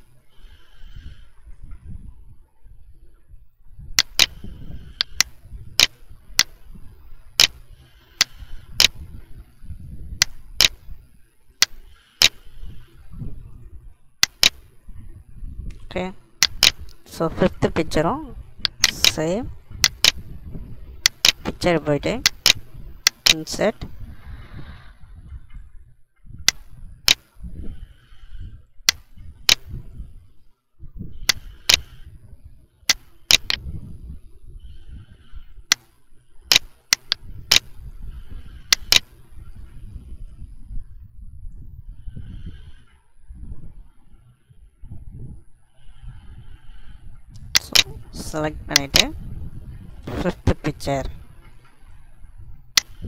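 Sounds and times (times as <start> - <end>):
computer mouse clicks: 4.0 - 6.6, 7.4 - 9.1, 10.2 - 10.9, 14.2 - 14.7, 16.4 - 17.0, 18.6 - 20.3, 21.0 - 23.7, 26.5 - 27.2, 31.3 - 32.0, 32.9 - 33.6, 36.5 - 37.7, 38.7 - 39.1, 47.5 - 48.0, 48.7 - 49.1, 52.8 - 53.0.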